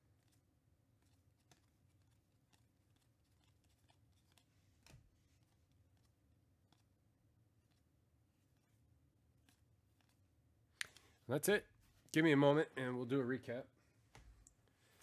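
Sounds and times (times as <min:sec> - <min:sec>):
trading cards sliding: 0:00.1 - 0:07.0.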